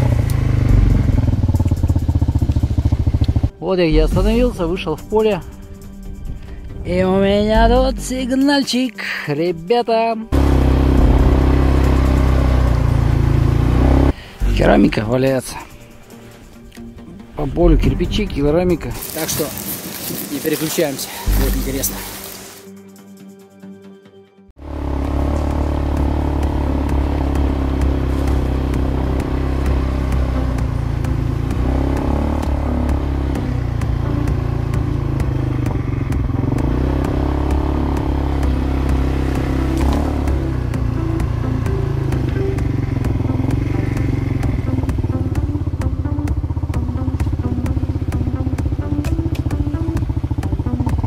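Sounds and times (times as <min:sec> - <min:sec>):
quad bike engine running: 0:00.0 - 0:04.6, 0:10.3 - 0:15.2, 0:21.2 - 0:22.6, 0:24.6 - 0:51.0.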